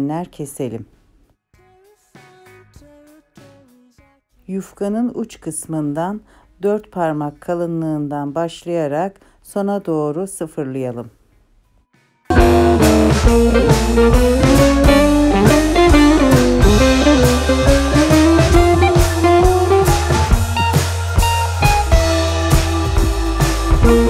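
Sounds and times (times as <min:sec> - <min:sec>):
guitar and drums music: 0:12.3 - 0:24.0.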